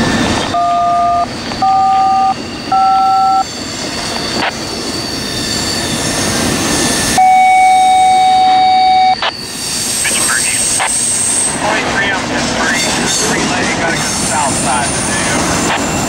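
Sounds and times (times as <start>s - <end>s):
long steady beep: 0.0s - 3.6s, 7.2s - 11.6s
train rolling past: 0.0s - 8.6s, 9.2s - 16.0s
radio touch-tone beeps: 0.6s - 3.4s, 7.2s - 9.4s, 10.0s - 11.8s.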